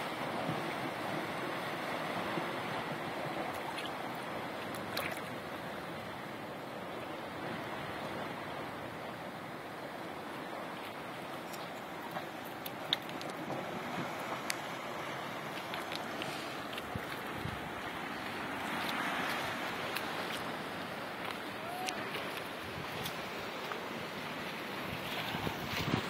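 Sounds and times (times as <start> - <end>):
sea surf on rocky shore: 0.0 - 26.0.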